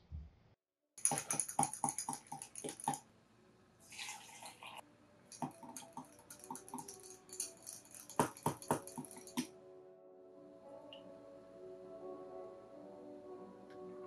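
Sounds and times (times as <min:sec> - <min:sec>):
spoon clinking against glass: 0:01.0 - 0:03.0, 0:05.3 - 0:09.5
coffee pouring into glass: 0:03.9 - 0:04.8.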